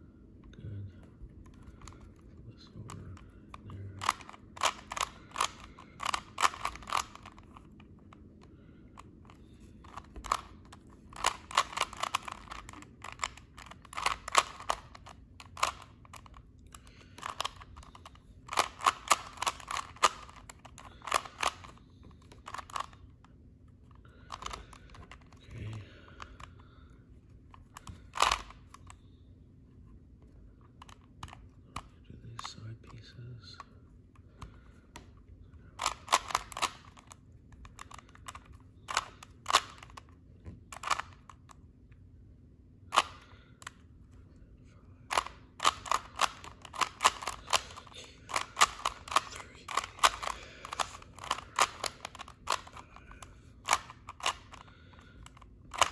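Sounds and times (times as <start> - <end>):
puzzle cube layers clacking: 2.8 - 8.3, 9.0 - 23.1, 24.2 - 26.5, 27.6 - 29.0, 35.8 - 41.4, 45.1 - 55.9.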